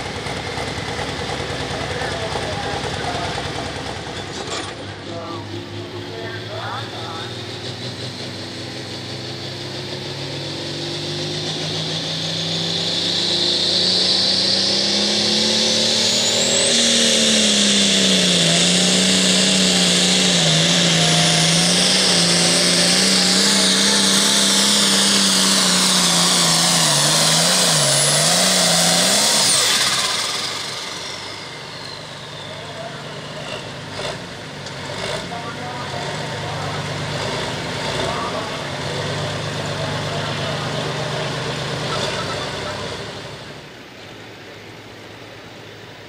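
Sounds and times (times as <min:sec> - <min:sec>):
diesel tractor engine revving: 0:00.0 - 0:45.6
turbo whine: 0:09.8 - 0:34.0.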